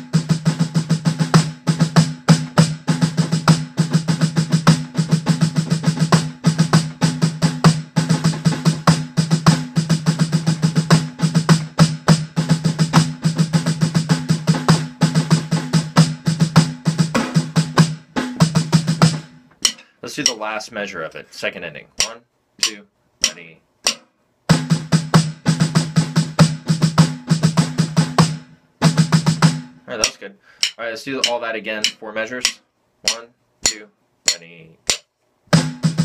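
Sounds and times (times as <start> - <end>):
electronic snare drum solo: 0.0 - 20.4, 22.0 - 34.4, 35.5 - 36.0.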